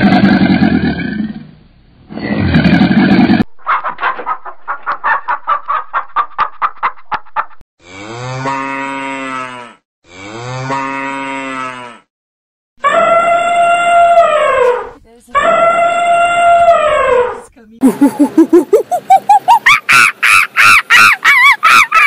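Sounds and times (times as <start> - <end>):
cow mooing: 7.8 - 12.1.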